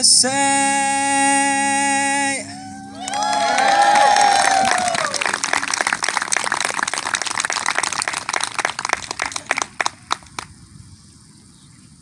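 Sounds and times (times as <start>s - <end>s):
audience applauding: 2.7s - 10.4s.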